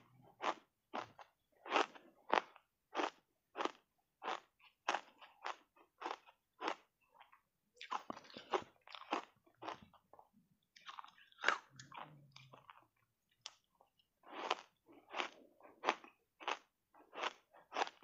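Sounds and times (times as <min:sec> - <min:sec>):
ice crunching being chewed: 0:00.4 - 0:18.0.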